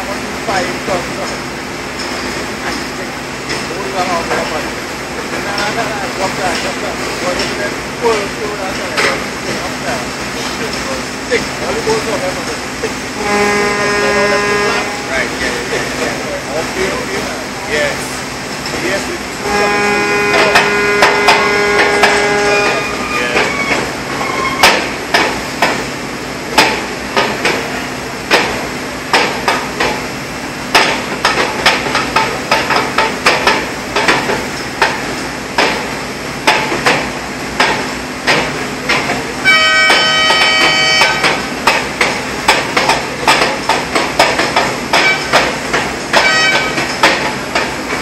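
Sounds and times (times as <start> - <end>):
horn-like tone: 13.2 - 15.2, 19.4 - 23.3, 39.4 - 41.3, 46.2 - 46.8
metal hammering: 20.3 - 22.8, 24.6 - 25.9, 26.6 - 27.6, 28.3 - 30.0, 30.7 - 48.0.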